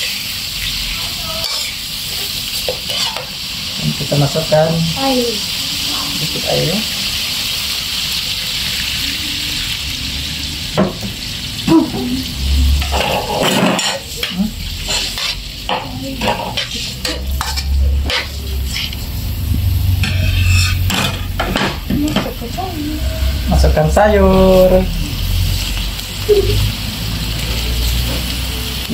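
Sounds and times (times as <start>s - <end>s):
sizzling liquid: 0.0s - 28.9s
water hissing in hot wok: 0.0s - 28.9s
spatula scraping metal wok: 1.0s - 3.4s, 12.2s - 23.8s
low steady rumble: 17.5s - 21.3s.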